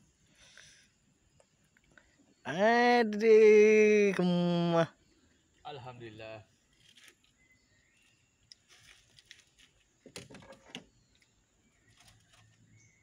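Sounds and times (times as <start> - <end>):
hands handling prawn and line: 8.0 - 10.7.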